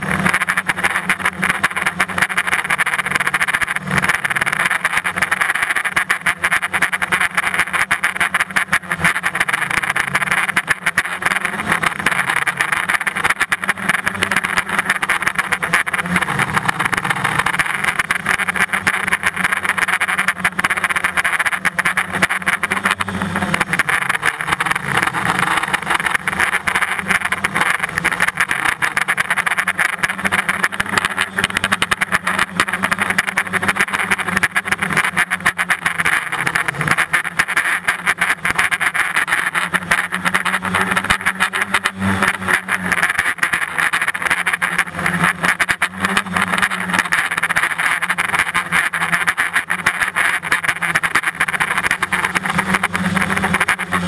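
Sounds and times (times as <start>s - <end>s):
drone propellers buzzing: 0.0s - 54.0s.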